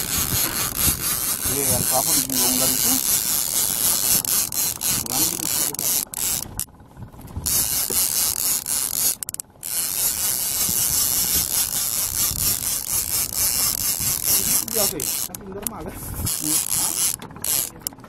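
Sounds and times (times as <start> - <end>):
fishing reel ratchet clicking: 0.0 - 6.7, 7.4 - 18.0.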